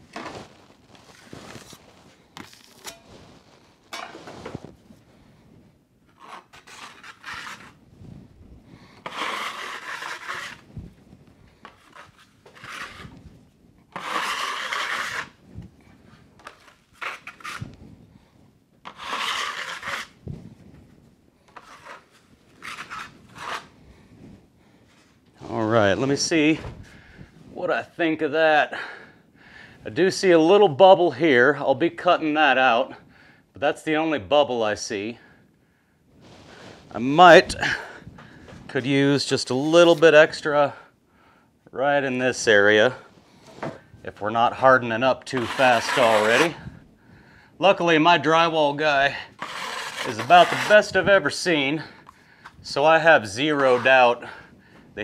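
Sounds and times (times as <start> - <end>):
drywall knife scraping: 0.1 - 4.7, 6.1 - 7.8, 9.0 - 10.7, 11.5 - 13.2, 13.9 - 15.4, 16.4 - 17.7, 18.8 - 20.2, 21.5 - 23.8, 45.2 - 46.7, 48.9 - 54.5.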